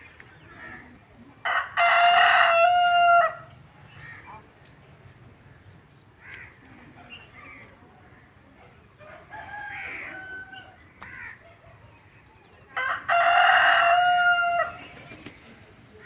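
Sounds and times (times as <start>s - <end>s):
rooster crowing: 1.4s - 3.5s, 9.0s - 10.8s, 12.8s - 14.8s.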